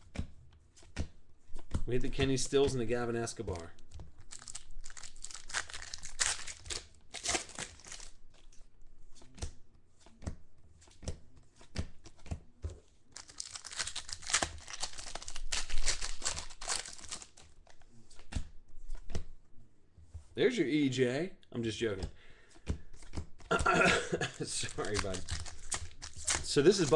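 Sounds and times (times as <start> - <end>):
foil wrappers crinkling and tearing: 3.6 - 8.2, 13.2 - 17.5, 24.2 - 26.9
cards clicking and tapping: 22.0 - 26.9.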